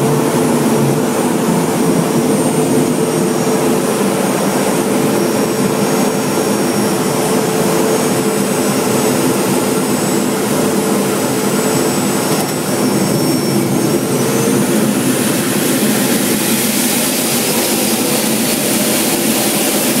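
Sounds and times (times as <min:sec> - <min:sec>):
jet engine steady tones: 0:00.0 - 0:20.0
rushing air hiss: 0:09.8 - 0:20.0.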